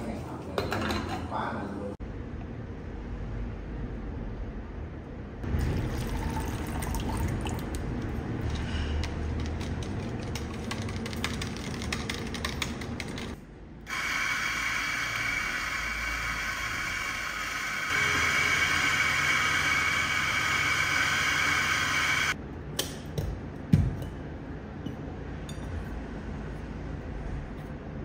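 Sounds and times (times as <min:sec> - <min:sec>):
electric coffee grinder running: 0:13.9 - 0:22.4.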